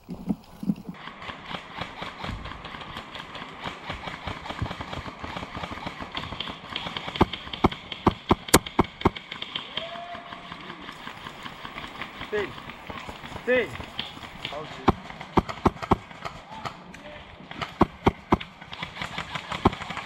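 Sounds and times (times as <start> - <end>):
airsoft gun shots: 14.9 - 16.4.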